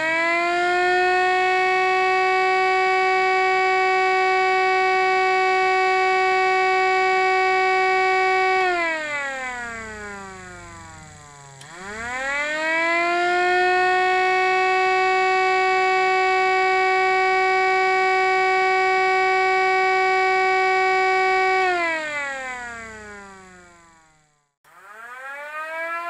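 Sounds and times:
miniature siren wailing: 0:00.0 - 0:26.0
motor click: 0:10.6 - 0:12.5.

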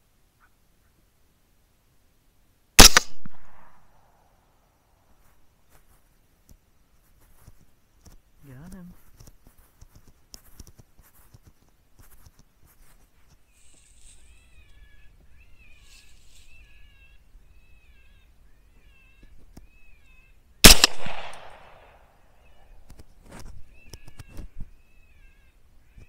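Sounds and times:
rifle shot with echo: 0:02.8 - 0:03.9, 0:20.6 - 0:22.0.

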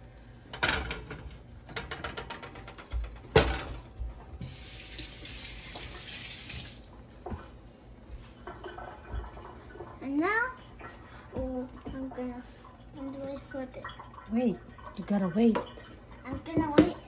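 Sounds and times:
kitchen tap running into sink: 0:04.4 - 0:06.9, 0:08.4 - 0:17.0
bread frying in a pan: 0:04.4 - 0:07.4.

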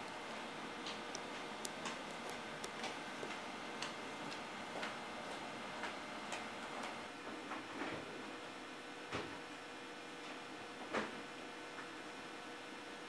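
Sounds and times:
stylus tapping on plastic: 0:00.9 - 0:03.4.

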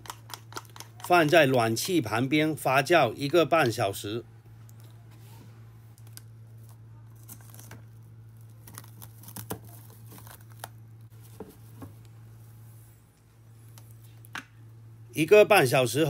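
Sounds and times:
faint steady low hum: 0:00.0 - 0:16.0
cling film crinkling: 0:05.9 - 0:11.2.

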